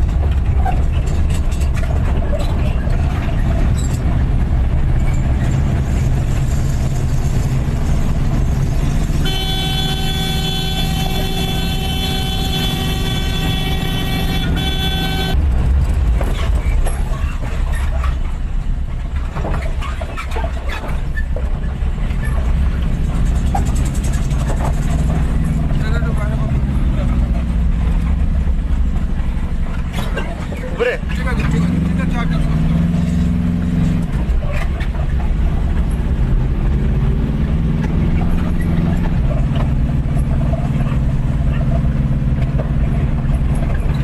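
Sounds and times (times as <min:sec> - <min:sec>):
car engine and road rumble: 0:00.0 - 0:44.0
vehicle horn blowing: 0:09.2 - 0:15.4.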